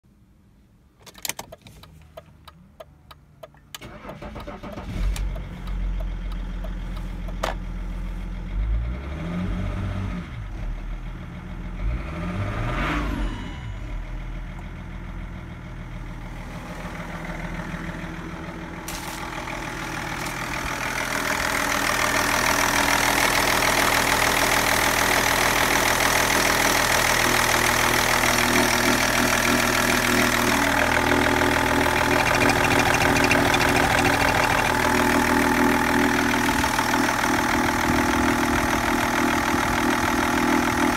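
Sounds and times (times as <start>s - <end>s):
diesel engine idling and revving: 1.9s - 40.9s
starter clicks: 31.9s - 34.9s.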